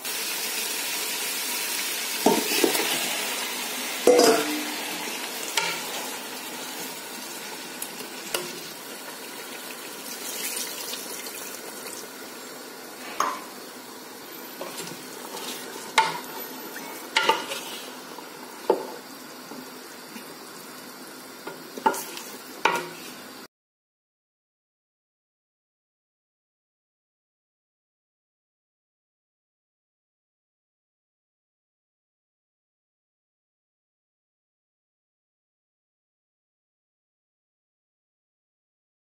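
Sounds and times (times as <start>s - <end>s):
food sizzling in hot oil: 0.0s - 23.5s
spoon scraping a pot: 14.6s - 17.9s.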